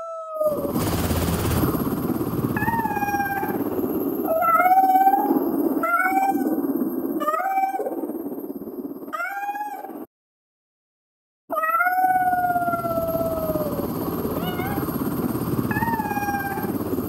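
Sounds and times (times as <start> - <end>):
morphed meow-like calls: 0.0 - 0.8, 2.6 - 6.6, 7.2 - 8.0, 9.1 - 10.1, 11.5 - 15.0, 15.7 - 16.8
pulsing helicopter drone: 0.4 - 10.1, 11.9 - 17.0.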